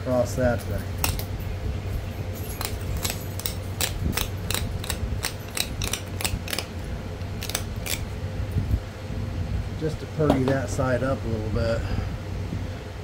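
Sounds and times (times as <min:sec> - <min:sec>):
steady low hum: 0:00.0 - 0:13.0
stone knapping clicks: 0:02.6 - 0:08.0.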